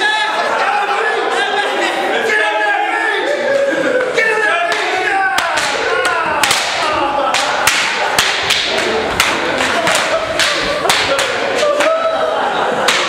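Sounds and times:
group shouting and cheering: 0:00.0 - 0:13.0.

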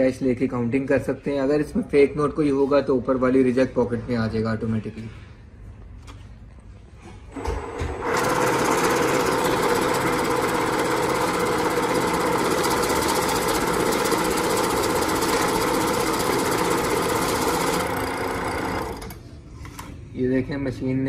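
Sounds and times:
banknote counting machine whirring: 0:07.6 - 0:19.2.

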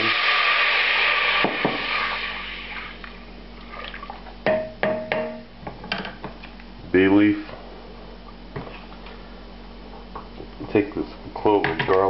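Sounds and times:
wine hissing in hot fat: 0:00.0 - 0:03.0
sharp knocks with ringing: 0:04.4 - 0:05.5.

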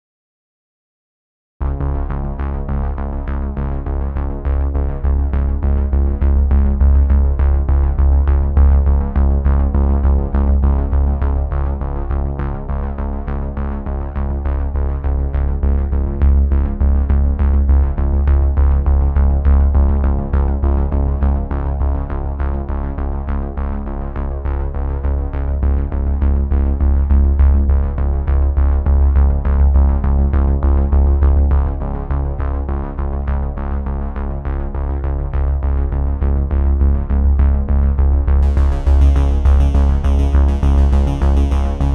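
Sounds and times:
drum machine beat with bass: 0:38.4 - 0:41.9
synthesizer chords: 0:38.4 - 0:41.9.

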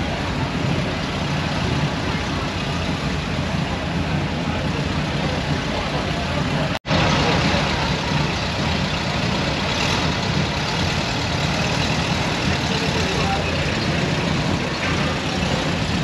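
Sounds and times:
car engines idling: 0:00.0 - 0:16.0.

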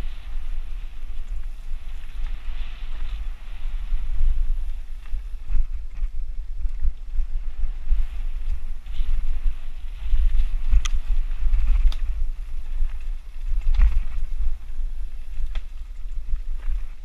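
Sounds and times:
wind buffeting microphone: 0:00.0 - 0:17.0
bike knocking and rattling: 0:04.2 - 0:17.0.

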